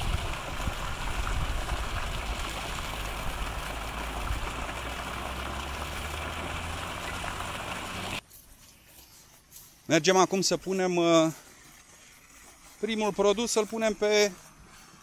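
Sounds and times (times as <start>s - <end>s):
fountain water splashing: 0.0s - 8.2s.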